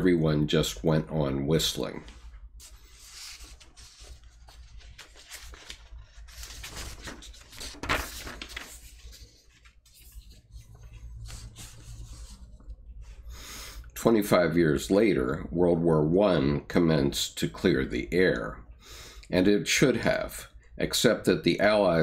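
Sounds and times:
low steady hum: 0.0s - 22.0s
rustling and handling noises: 1.8s - 13.3s.

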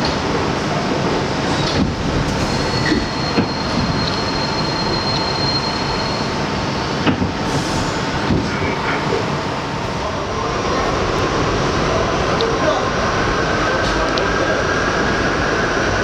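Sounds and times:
wheels rumbling on rail: 0.0s - 16.0s
high wheel squeal: 1.5s - 6.8s.

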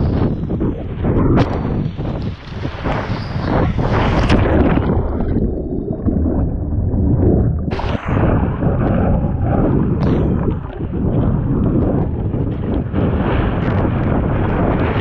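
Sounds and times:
water rushing and splashing: 0.0s - 15.0s
wind buffeting microphone: 0.0s - 15.0s.

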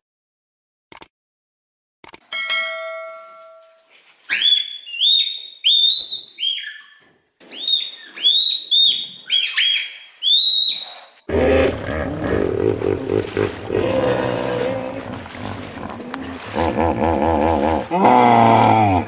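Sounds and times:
animal whistled calls: 7.6s - 11.2s
rough low sound: 11.3s - 19.0s.

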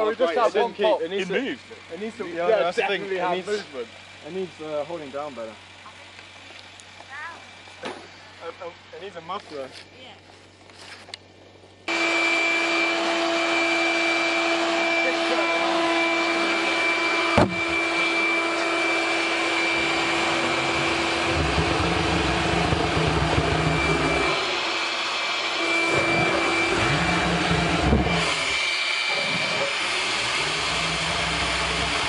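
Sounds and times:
electric blower motor whine: 10.6s - 32.0s.

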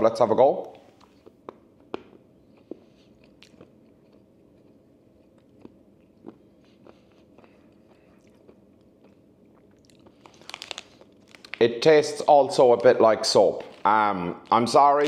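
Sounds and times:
person sucking and chewing candy: 1.0s - 11.6s.

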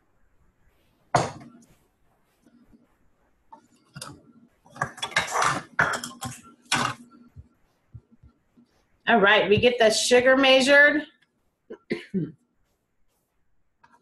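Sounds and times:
dishes clattering: 1.2s - 1.6s, 3.9s - 7.1s
scraping and rustling: 3.5s - 7.3s.

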